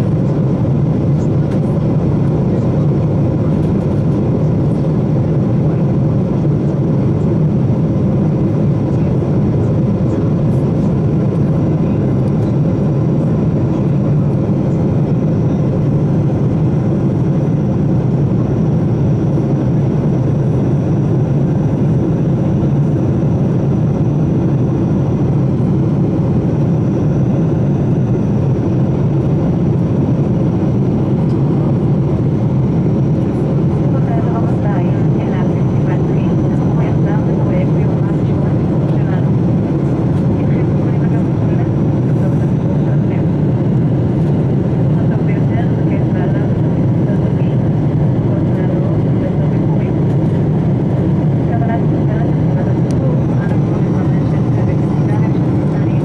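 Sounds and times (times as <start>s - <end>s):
jet cabin engine rush: 0.0s - 56.0s.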